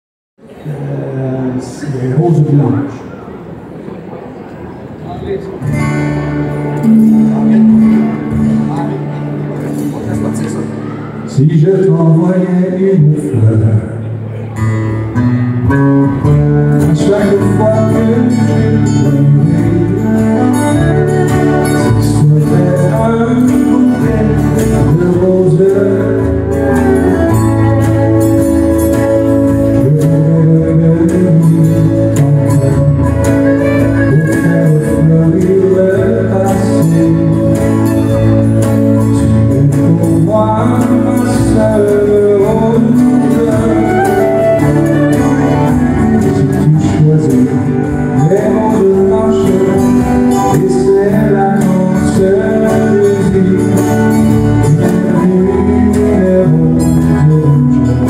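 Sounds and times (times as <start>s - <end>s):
acoustic guitars strumming: 4.9s - 58.0s
man singing: 10.1s - 14.1s, 15.7s - 58.0s.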